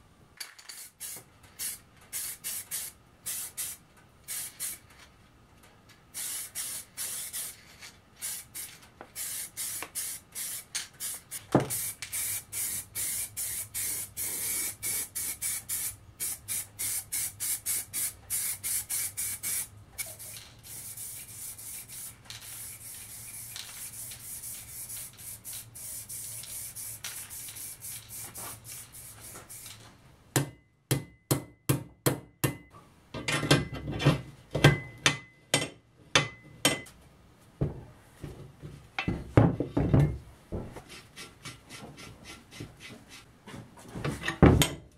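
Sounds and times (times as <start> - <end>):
spray paint can hissing: 0.7 - 4.9, 6.1 - 29.8.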